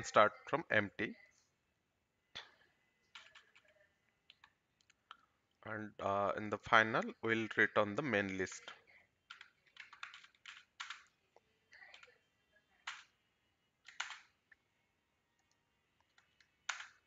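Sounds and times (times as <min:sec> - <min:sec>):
typing on computer keyboard: 0:03.1 - 0:05.2, 0:08.6 - 0:11.1, 0:11.7 - 0:12.2, 0:12.8 - 0:13.1, 0:13.8 - 0:14.3, 0:16.0 - 0:17.0.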